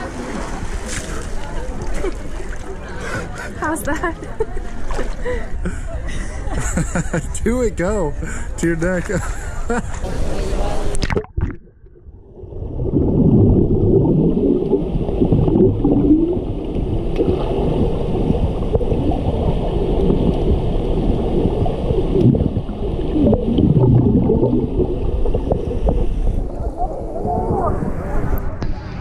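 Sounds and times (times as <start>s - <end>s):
muffled underwater rumble: 9.2s - 29.0s
gurgling bubbles: 10.9s - 28.6s.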